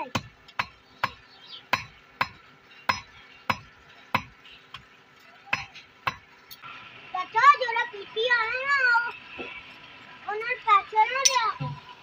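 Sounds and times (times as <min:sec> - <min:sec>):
hammer striking steel on anvil: 0:00.0 - 0:04.8, 0:05.5 - 0:06.3.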